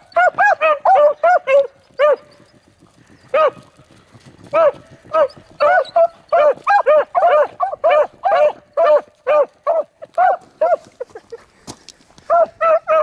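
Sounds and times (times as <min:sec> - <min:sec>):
dogs barking: 0:00.0 - 0:02.4, 0:03.3 - 0:03.6, 0:04.5 - 0:10.9, 0:12.2 - 0:13.0.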